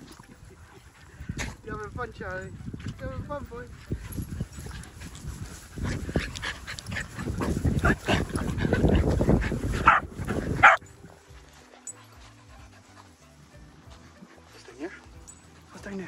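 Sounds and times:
small dogs barking and yipping: 4.1s - 10.9s.

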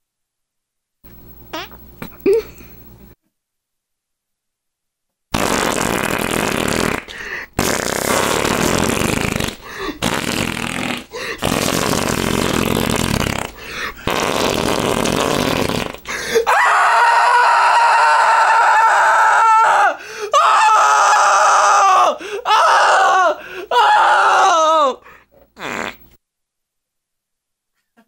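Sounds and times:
long rough fart: 1.5s - 1.8s, 5.3s - 16.2s, 25.6s - 26.2s.

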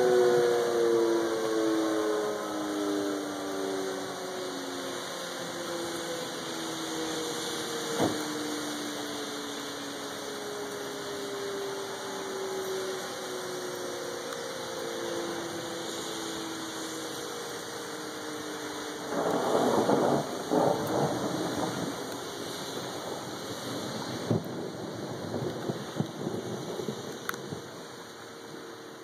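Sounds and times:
rain hissing: 0.0s - 29.0s
warning siren winding down: 0.0s - 29.0s
loud rushing noise: 19.1s - 27.1s.

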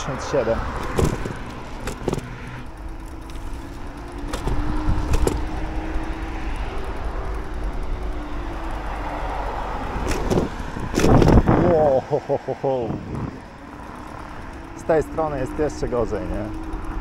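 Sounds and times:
wind on microphone: 9.9s - 11.9s, 12.8s - 13.5s.

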